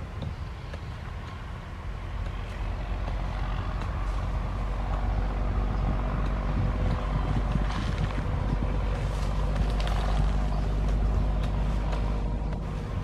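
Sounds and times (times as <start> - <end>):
low engine rumble: 0.0 - 13.0
tool digging in dry ground: 7.5 - 13.0.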